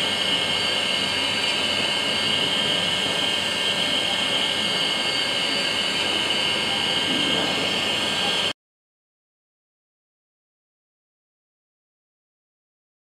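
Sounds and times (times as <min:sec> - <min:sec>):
milling machine spindle whine: 0:00.0 - 0:08.6.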